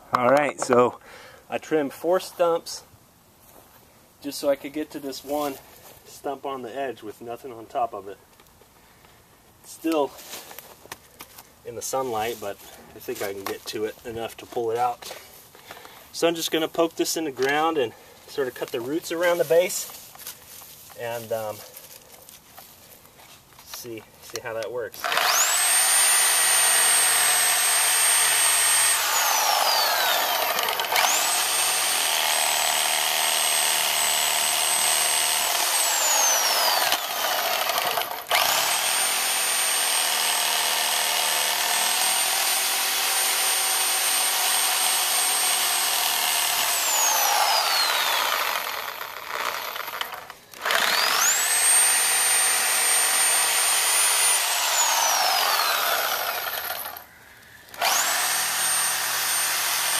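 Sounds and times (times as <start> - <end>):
reciprocating saw cutting roots: 23.7 - 57.1, 57.7 - 59.9.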